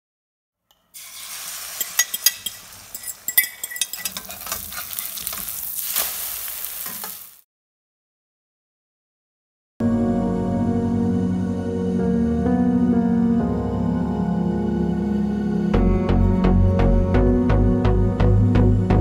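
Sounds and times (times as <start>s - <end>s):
omelette sizzling in wok: 0.9s - 7.4s
metal spatula scraping pan: 1.0s - 7.3s.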